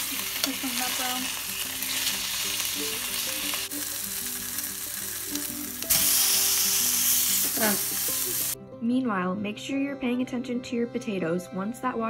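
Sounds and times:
meat sizzling in a frying pan: 0.0s - 8.6s.

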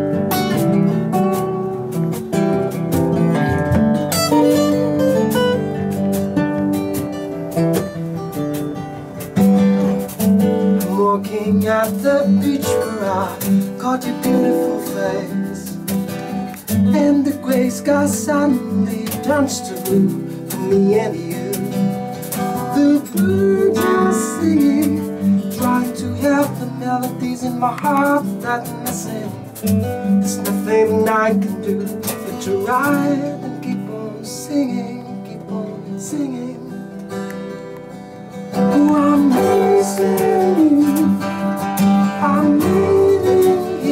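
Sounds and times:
acoustic guitars strumming: 0.0s - 43.9s
man singing: 10.8s - 37.0s, 38.6s - 43.9s.

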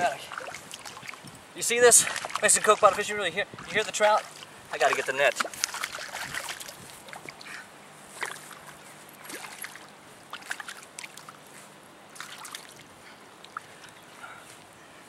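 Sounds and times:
fish splashing at water surface: 4.2s - 7.3s.

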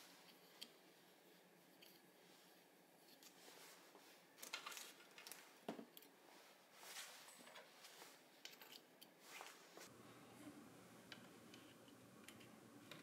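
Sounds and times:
small parts clicking and tapping: 8.4s - 9.2s.

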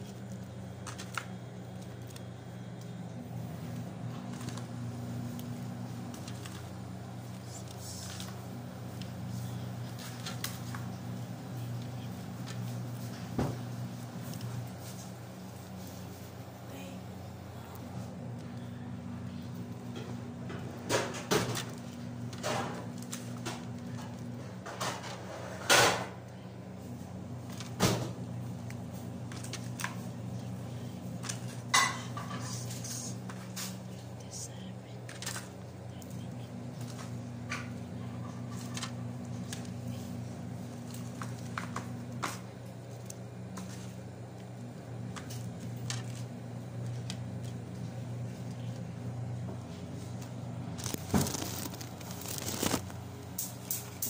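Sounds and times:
steady low hum: 0.0s - 54.0s
papery rustles: 3.3s - 16.3s, 32.2s - 42.2s, 49.6s - 53.0s.

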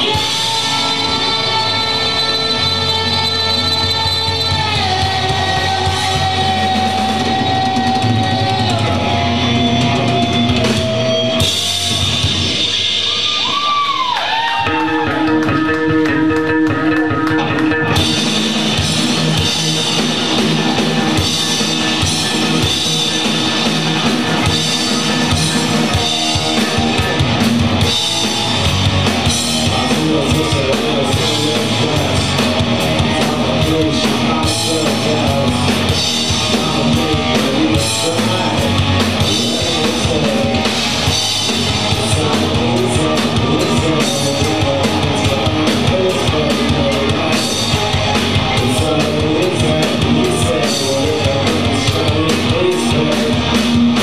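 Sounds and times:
person singing: 0.0s - 12.0s, 27.8s - 54.0s
bass guitar: 0.0s - 54.0s
drum kit: 0.0s - 54.0s
electric guitars: 0.0s - 54.0s.

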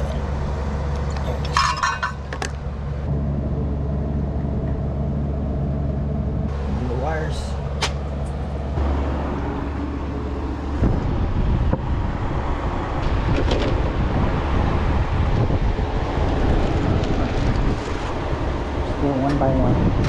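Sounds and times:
car engine running: 0.0s - 20.0s
wind on microphone: 9.4s - 20.0s.

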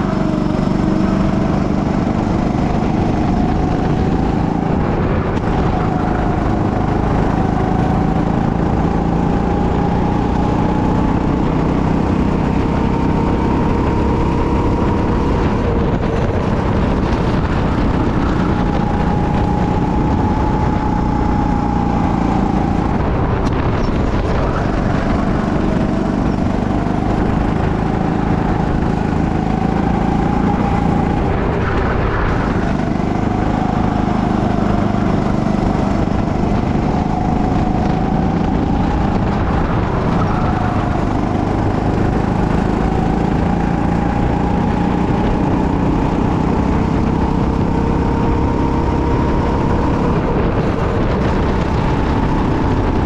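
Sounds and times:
go-kart engine revving: 0.0s - 53.0s
steady low rumble: 14.4s - 45.6s.

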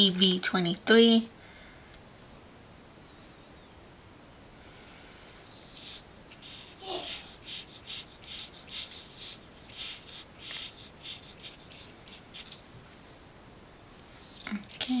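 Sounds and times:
paintbrush scrubbing on paper: 5.6s - 12.7s.

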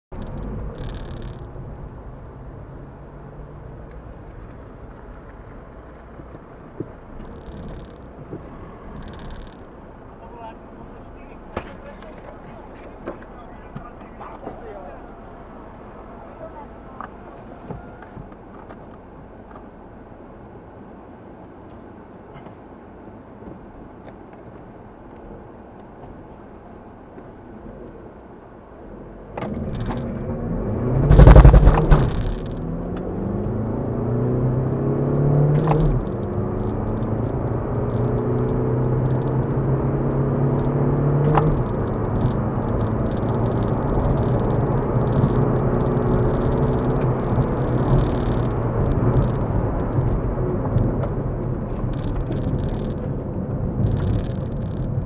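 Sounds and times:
diesel car engine accelerating: 28.8s - 55.0s.

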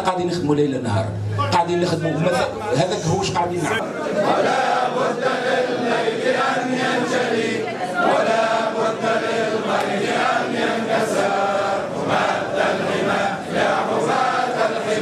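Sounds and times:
crowd chanting in unison: 3.8s - 15.0s.

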